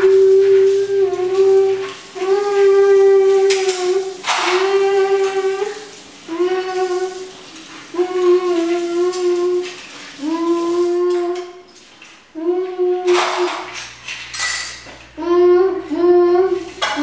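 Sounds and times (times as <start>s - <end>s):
child humming long notes: 0.0s - 11.7s, 12.3s - 13.7s, 15.2s - 17.0s.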